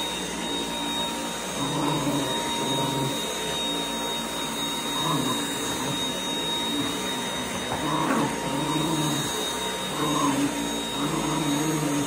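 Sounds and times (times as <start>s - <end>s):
vacuum cleaner motor whine: 0.0s - 12.0s.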